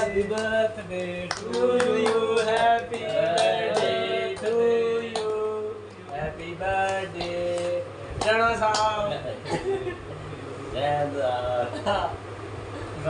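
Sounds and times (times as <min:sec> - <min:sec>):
men singing: 0:00.0 - 0:09.3
hands clapping in time: 0:01.3 - 0:05.4, 0:06.8 - 0:09.0.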